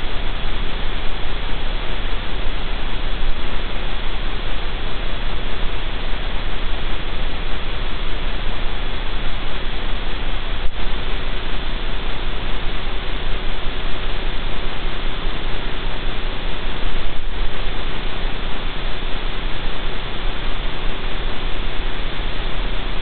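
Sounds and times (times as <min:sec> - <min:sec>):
loud static hiss: 0:00.0 - 0:23.0.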